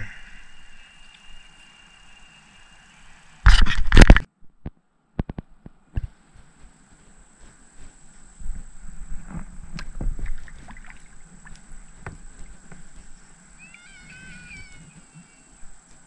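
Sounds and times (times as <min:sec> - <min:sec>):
gear knocking in a kayak: 0:06.0 - 0:16.0
bird calling: 0:10.3 - 0:16.0.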